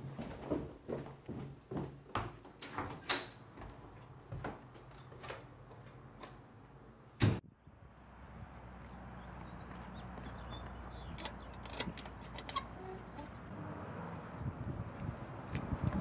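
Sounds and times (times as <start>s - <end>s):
footsteps on stairs: 0.0s - 3.0s, 3.6s - 4.9s
outdoor hum: 3.0s - 16.0s
door being unlatched and opened: 11.2s - 13.3s.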